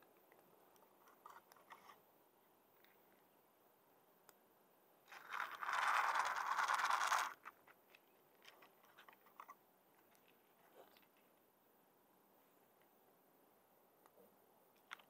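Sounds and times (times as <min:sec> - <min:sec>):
cat crunching dry kibble: 0:05.1 - 0:07.6.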